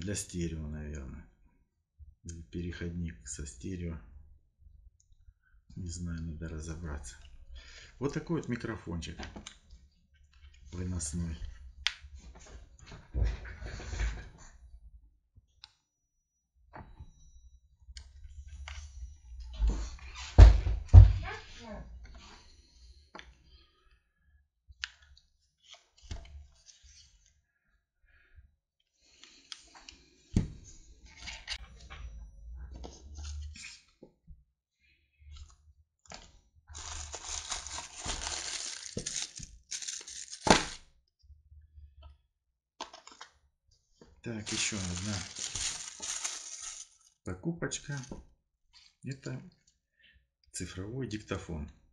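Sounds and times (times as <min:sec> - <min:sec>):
plastic bag crinkling: 0:36.7 - 0:40.8, 0:44.4 - 0:47.2
sharp plastic crackle: 0:36.7 - 0:40.8, 0:44.5 - 0:47.2.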